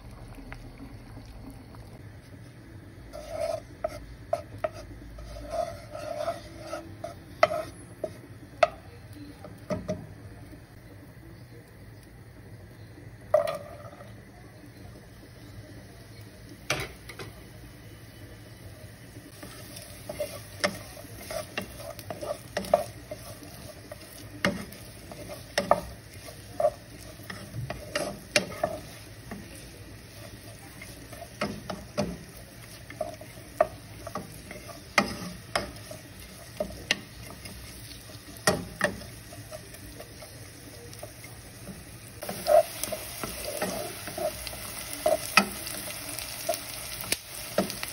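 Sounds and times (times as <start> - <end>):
faint sizzle: 0.0 - 47.9
spoon scraping pot: 3.1 - 8.8, 19.2 - 47.8.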